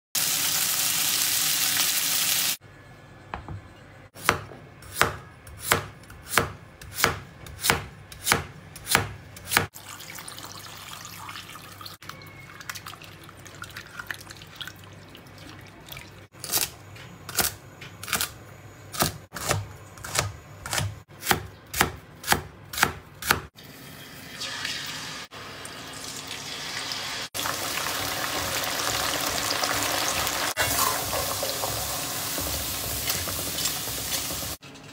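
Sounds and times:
loud sizzle: 0.2 - 2.6, 23.6 - 34.6
knife chopping on cutting board: 4.2 - 9.7, 19.0 - 23.5
potato slices deep-frying in oil: 23.6 - 34.6.

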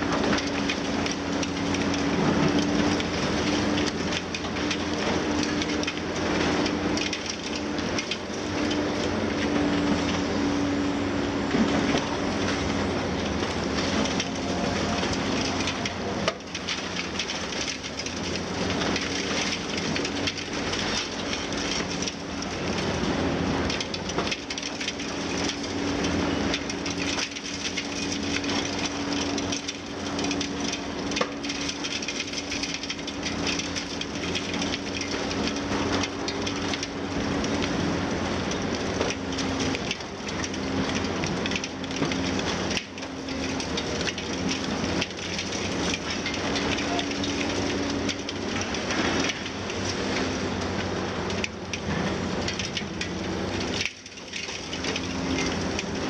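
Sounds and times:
excavator engine and hydraulics: 0.0 - 56.0
concrete crunching and falling: 11.5 - 23.0, 23.6 - 56.0.

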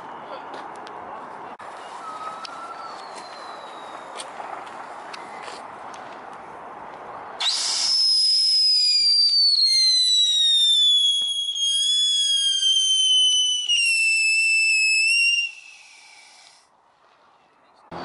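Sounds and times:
firework high whistle: 1.9 - 4.2, 7.4 - 16.7.

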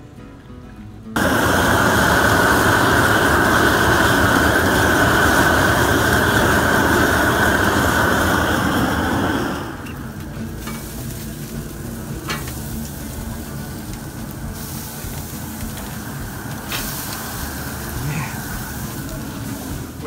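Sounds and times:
meat sizzling on a grill: 1.2 - 20.0
sharp pops: 13.8 - 17.6.

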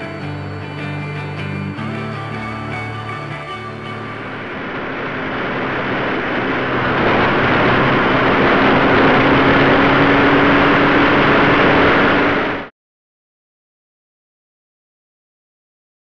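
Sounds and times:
music: 0.0 - 4.6
motorcycle engine drone: 0.0 - 12.7
wind rush: 3.3 - 12.7.

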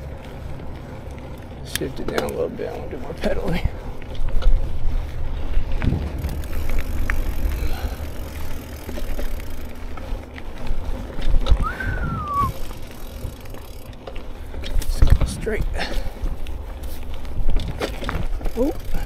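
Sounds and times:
bike rattling and knocking: 0.0 - 19.0
bike tyres rumbling over dirt: 0.0 - 19.0
wind on microphone: 4.6 - 8.2, 11.4 - 12.6
rising and falling whistle: 11.6 - 12.6.

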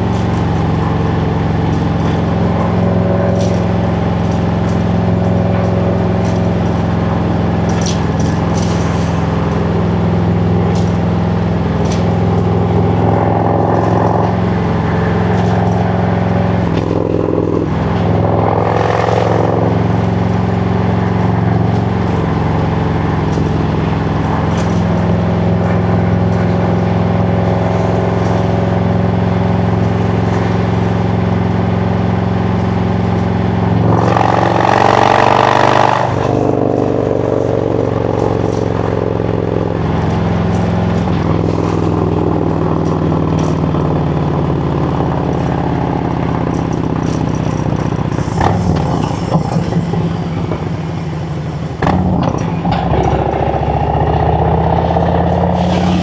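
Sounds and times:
motorcycle engine and exhaust: 0.0 - 56.0
rushing noise: 44.7 - 56.0.

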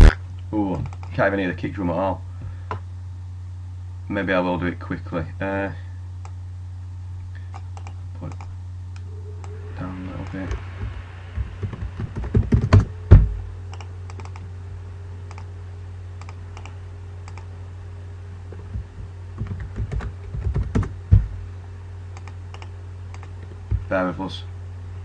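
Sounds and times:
steady low hum: 0.0 - 25.0
heavier thump: 11.4 - 13.5, 21.0 - 21.4.

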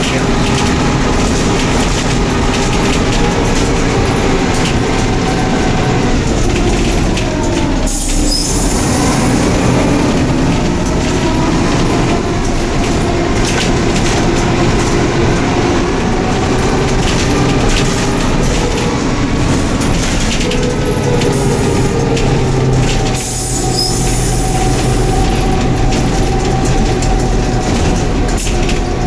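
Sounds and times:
bus engine and road drone: 0.0 - 29.0
rattles and knocks from fittings: 10.0 - 29.0.

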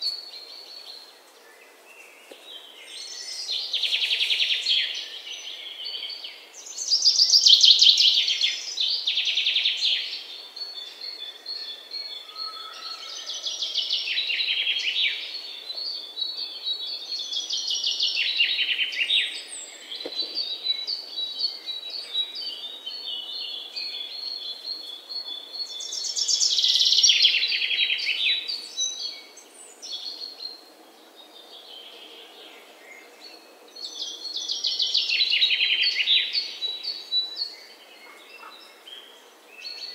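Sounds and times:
faint steady hiss: 0.0 - 12.3
songbirds chirping: 0.0 - 39.9.

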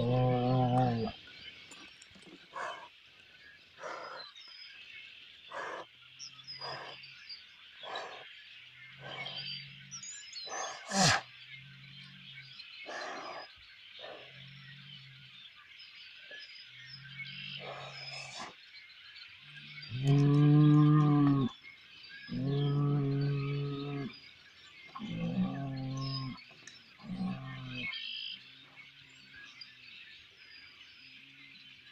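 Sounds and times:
birds chirping faintly: 0.0 - 31.9
bull blowing and sneezing: 10.5 - 11.2.

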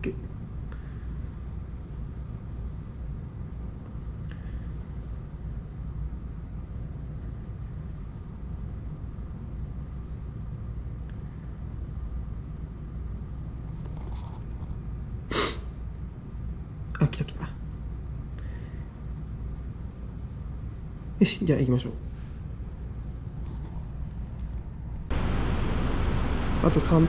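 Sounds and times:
short loud hiss: 15.3 - 15.6
street traffic rumble: 22.5 - 27.0.

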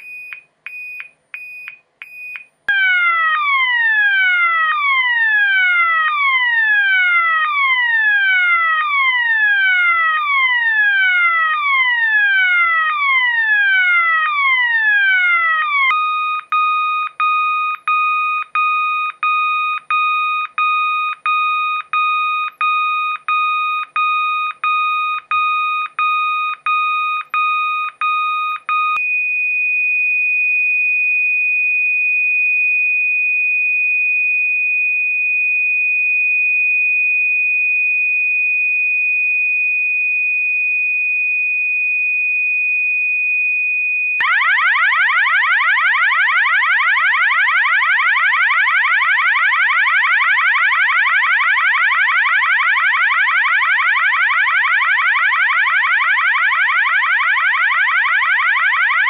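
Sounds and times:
continuous high alarm tone: 0.0 - 59.0
alarm beeping: 14.7 - 29.5.

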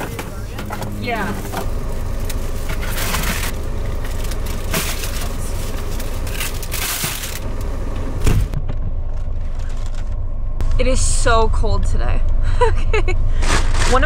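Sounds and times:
plastic bags rustling: 0.0 - 7.8
steady low rumble: 0.0 - 14.0.

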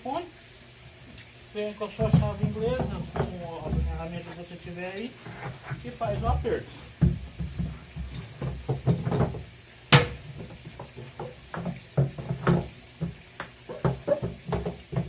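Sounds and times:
wrench knocking against plastic drum: 11.2 - 15.0.

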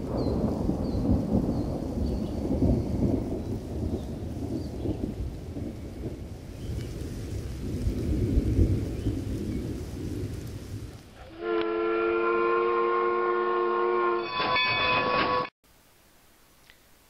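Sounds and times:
low rumbling thunder: 0.0 - 13.1
rain: 0.0 - 13.1, 15.6 - 17.0
steam locomotive whistle: 11.2 - 15.5.

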